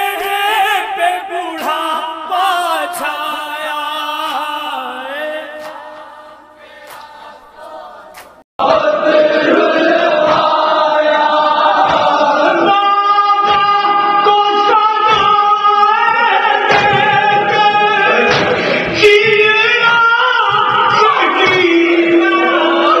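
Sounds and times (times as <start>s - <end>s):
man singing into a microphone: 0.0s - 6.4s, 12.3s - 23.0s
men singing a lament: 0.0s - 23.0s.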